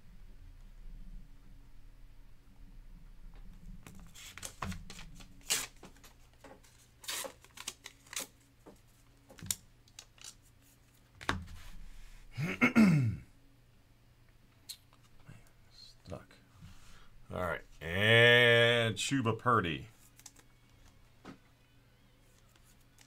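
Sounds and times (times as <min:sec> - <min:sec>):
trading cards snapping and rustling: 0:03.8 - 0:10.4, 0:20.0 - 0:20.9.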